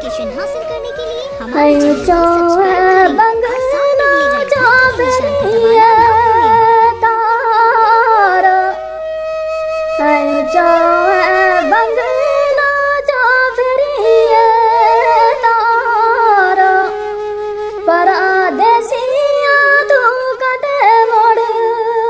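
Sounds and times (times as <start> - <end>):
high voice singing folk song: 1.5 - 8.4.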